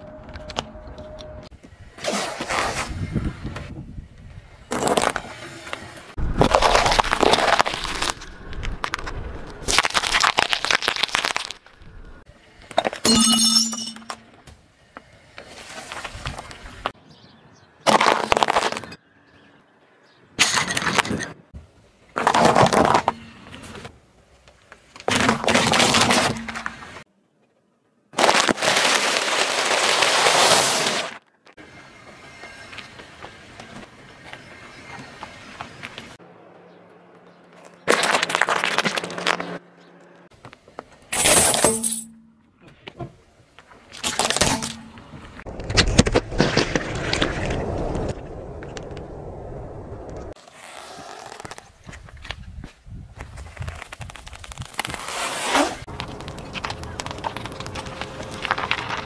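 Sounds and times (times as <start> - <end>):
tyre crunching objects: 4.7 - 12.2, 17.8 - 19.0, 22.1 - 23.3, 28.2 - 31.2, 37.5 - 39.6, 50.4 - 59.0
plastic cracking: 6.3 - 12.0, 55.9 - 59.0
plastic snack bag crunching: 6.4 - 9.0, 9.6 - 11.8
drink carton squashed and squirting: 28.2 - 31.2.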